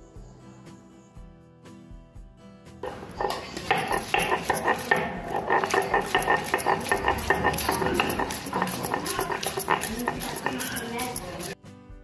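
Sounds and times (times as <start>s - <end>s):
stone grinding on stone: 2.8s - 11.6s.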